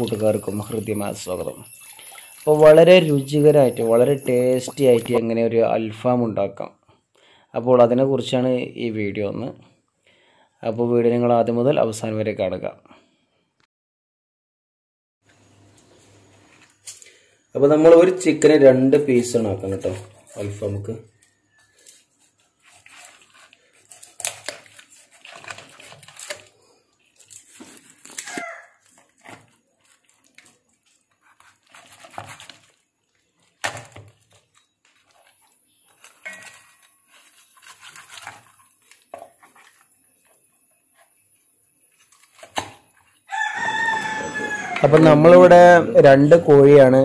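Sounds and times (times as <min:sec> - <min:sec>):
meat and bone tearing: 0:22.7 - 0:32.7, 0:33.6 - 0:39.8
loud pitched call: 0:43.3 - 0:45.0.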